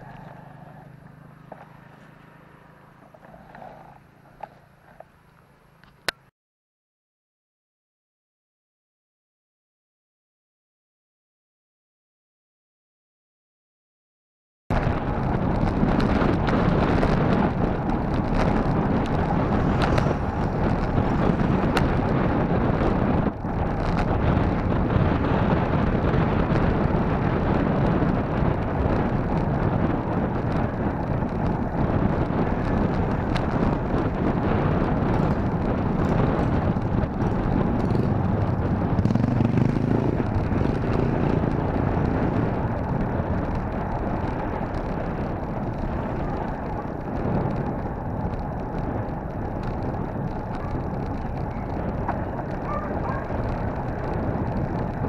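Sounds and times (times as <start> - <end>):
wind buffeting microphone: 14.7 - 55.0.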